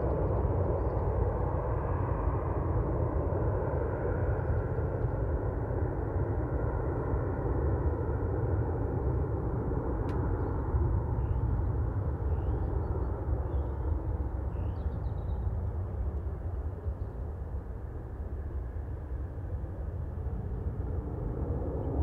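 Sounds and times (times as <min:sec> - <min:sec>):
distant jet engine rumble: 0:00.0 - 0:22.0.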